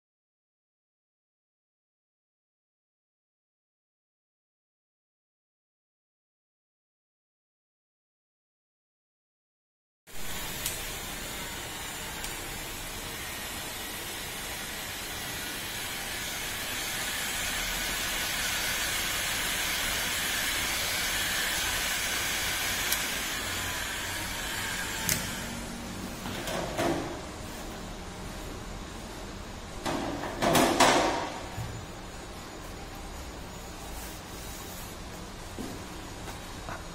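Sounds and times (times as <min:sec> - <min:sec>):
heat gun blowing air: 0:10.2 - 0:25.7.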